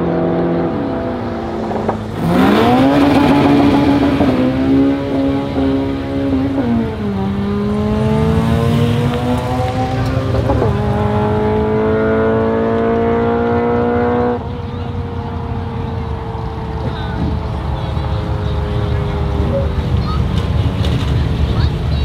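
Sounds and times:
race car engine accelerating: 0:00.0 - 0:22.0.

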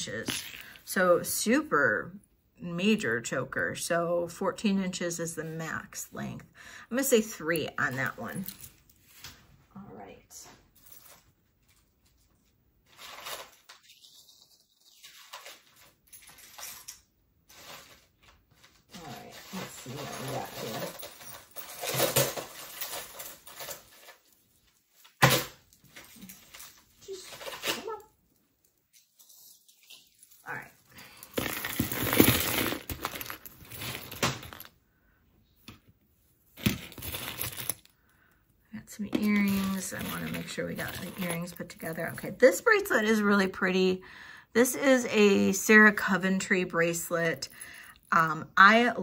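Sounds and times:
jewelry clinking and rattling: 0:07.4 - 0:09.0, 0:14.9 - 0:17.8, 0:19.0 - 0:24.3, 0:28.9 - 0:34.8, 0:36.6 - 0:37.9, 0:39.0 - 0:42.5
jewelry clicking and clinking: 0:31.2 - 0:34.8, 0:36.6 - 0:37.9.

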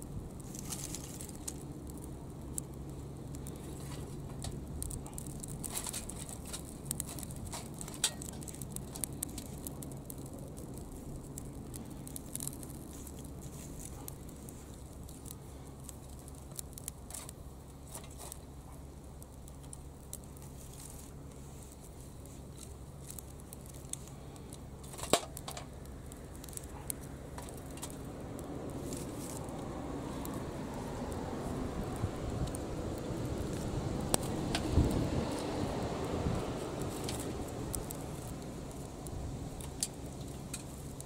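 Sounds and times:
steady low hum: 0:00.0 - 0:41.0
twigs dropped into metal stove: 0:00.4 - 0:01.7, 0:03.4 - 0:10.5, 0:14.6 - 0:18.5, 0:24.8 - 0:25.9, 0:26.5 - 0:28.1, 0:33.5 - 0:35.6, 0:36.8 - 0:37.9, 0:39.5 - 0:40.9.

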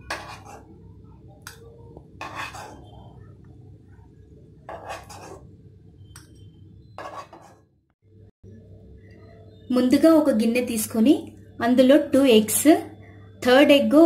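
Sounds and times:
metal spoon scraping a pan: 0:00.0 - 0:00.7, 0:02.2 - 0:03.2, 0:04.7 - 0:05.5, 0:06.9 - 0:07.6.

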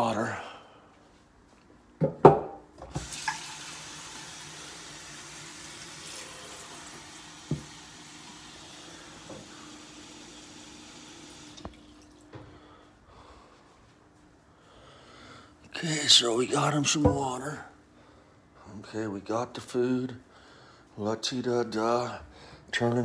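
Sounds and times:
tap running into a sink: 0:02.8 - 0:04.4, 0:06.0 - 0:10.2, 0:11.0 - 0:12.3
container knocking against sink: 0:07.5 - 0:07.8.

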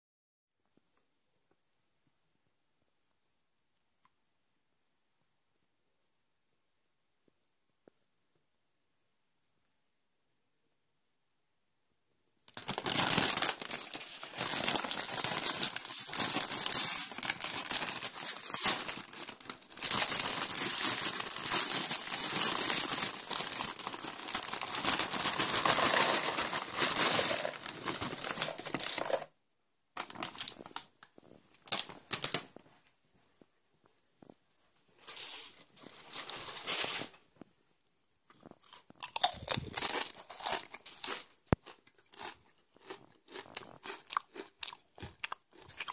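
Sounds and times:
chip bag crinkling: 0:12.5 - 0:29.3, 0:30.0 - 0:32.6, 0:35.0 - 0:37.2, 0:38.3 - 0:45.9
chips pouring into a plastic tub: 0:12.6 - 0:29.3.

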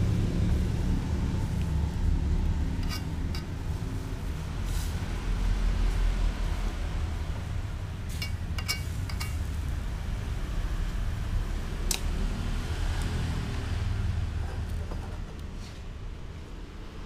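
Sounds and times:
metal spoon clinking on wok: 0:02.8 - 0:03.6, 0:08.1 - 0:09.5.

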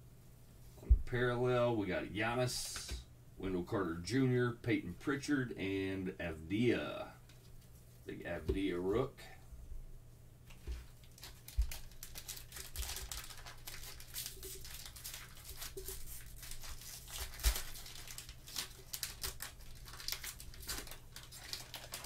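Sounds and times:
plastic wrapper crinkling and tearing: 0:10.9 - 0:22.0.

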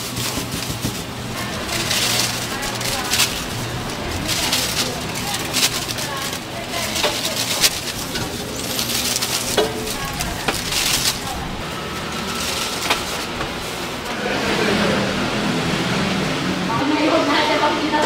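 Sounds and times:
plastic bags rustling and crinkling: 0:00.0 - 0:14.2
shop background noise: 0:00.0 - 0:18.0.

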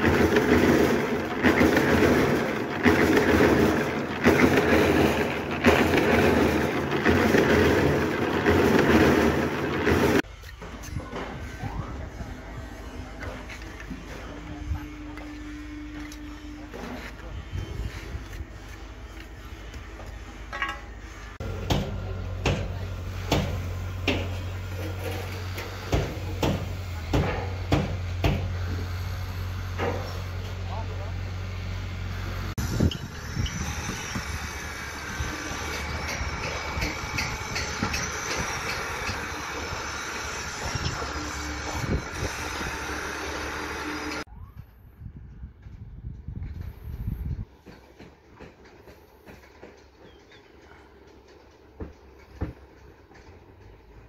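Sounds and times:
concrete mixer churning rattle: 0:00.0 - 0:10.3, 0:20.0 - 0:44.3.

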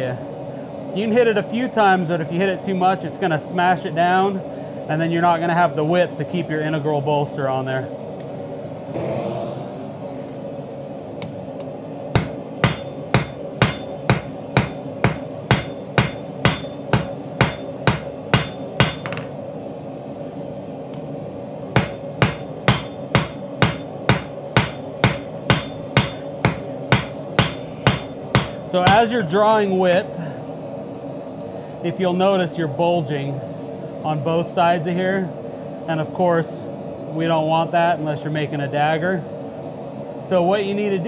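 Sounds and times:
steady low hum: 0:00.0 - 0:41.0
hammer striking steel on anvil: 0:12.2 - 0:19.3, 0:21.8 - 0:29.1.

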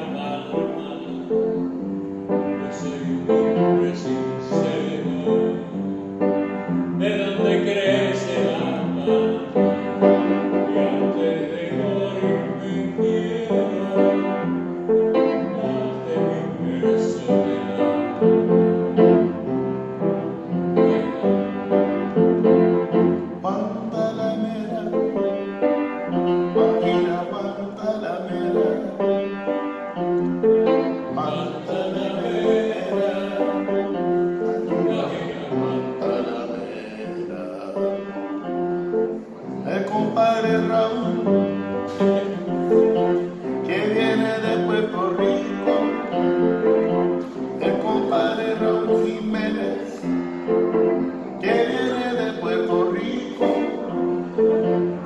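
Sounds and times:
upright piano playing: 0:00.0 - 0:55.0
harmonica melody: 0:24.2 - 0:55.0.

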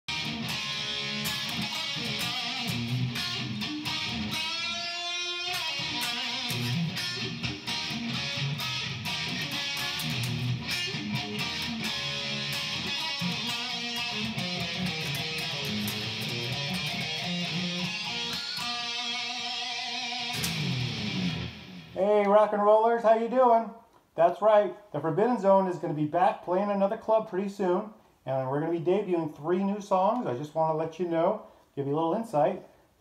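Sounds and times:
guitar note with vibrato: 0:00.1 - 0:22.0
funky electric guitar strumming: 0:00.1 - 0:22.5.

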